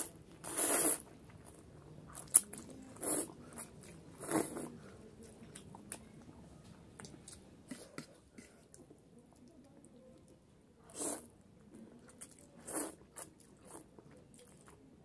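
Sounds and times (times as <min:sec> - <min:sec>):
noodles being slurped: 0:00.0 - 0:01.1, 0:10.9 - 0:11.3, 0:12.2 - 0:13.8.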